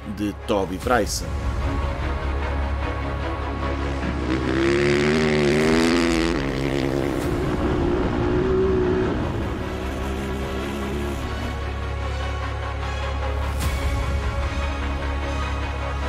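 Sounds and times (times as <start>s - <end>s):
motorcycle engine revving: 3.8s - 11.7s.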